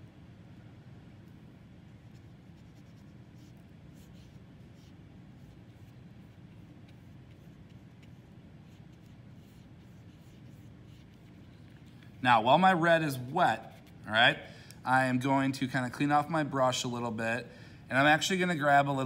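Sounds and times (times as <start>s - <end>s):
low steady hum: 0.0s - 19.0s
paintbrush swishing on paper: 1.9s - 12.3s, 13.6s - 14.1s.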